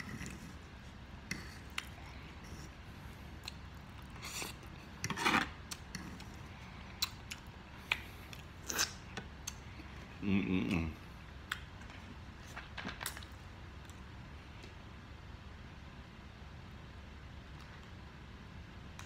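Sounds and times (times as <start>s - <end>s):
fork scraping wooden table: 0.0s - 0.6s, 4.3s - 6.2s
mouth eating noises: 5.6s - 11.8s.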